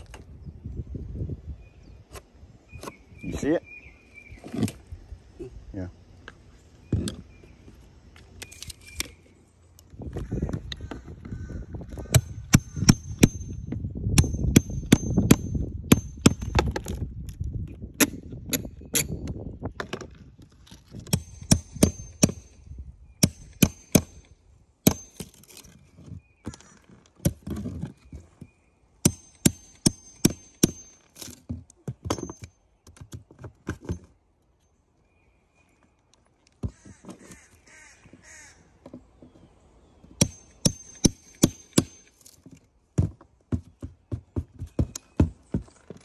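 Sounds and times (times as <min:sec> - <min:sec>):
hammer striking steel pry bar: 0:21.1 - 0:22.6, 0:23.2 - 0:25.4, 0:29.0 - 0:31.1, 0:40.2 - 0:42.2.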